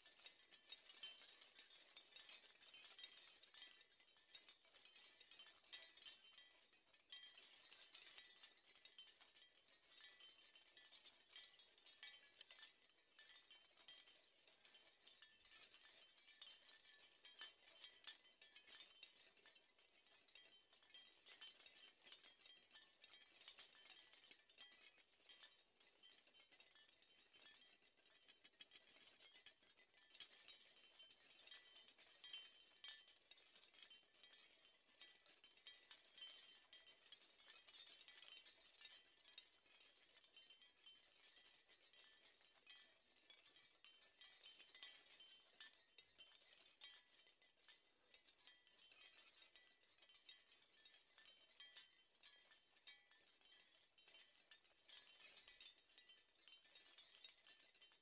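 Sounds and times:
seashell wind chime clinking: 48.4 - 58.0.

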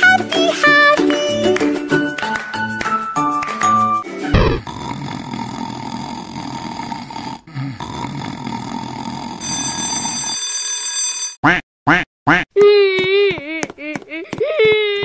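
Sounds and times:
alarm clock bell ringing: 9.4 - 11.4.

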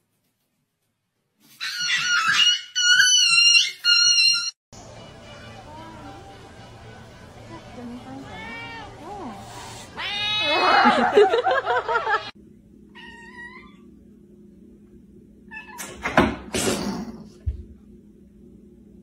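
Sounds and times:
cat meow: 8.2 - 9.0, 10.0 - 10.9, 13.0 - 13.9
cats yowling: 8.2 - 11.2, 13.0 - 13.9.

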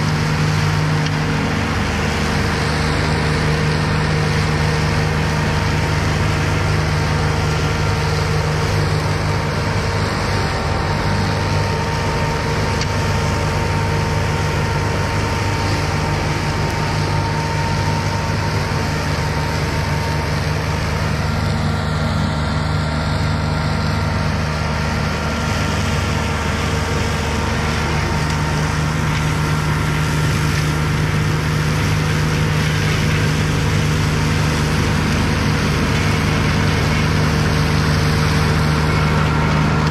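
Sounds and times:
mower engine droning: 0.0 - 39.9.

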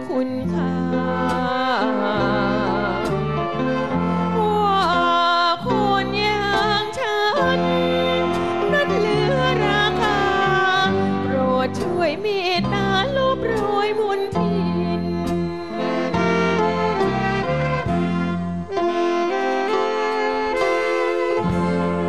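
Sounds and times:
woman singing ornamented line: 0.0 - 3.1, 4.4 - 16.3
big band with saxophones and violins: 0.0 - 22.0.

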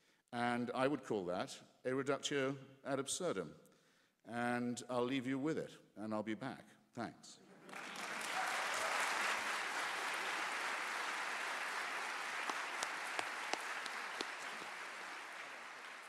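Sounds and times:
audience applauding: 7.5 - 16.0.

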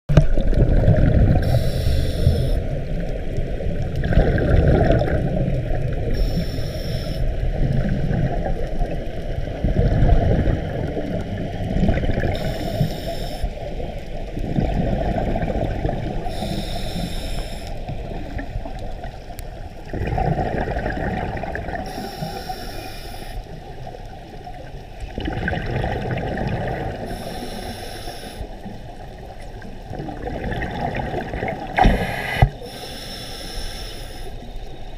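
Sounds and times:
exhaled bubbles hissing: 0.1 - 34.9
muffled water rumble: 0.1 - 34.9.

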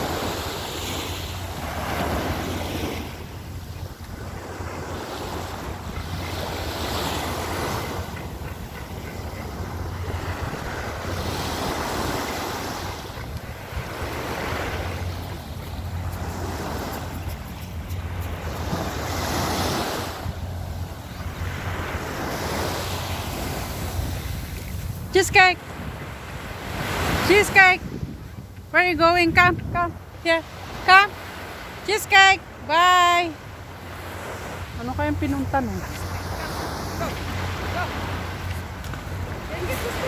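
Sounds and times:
waves washing onto sandy shore: 0.0 - 28.2, 30.1 - 40.0
wind rumble on microphone: 27.6 - 30.0.

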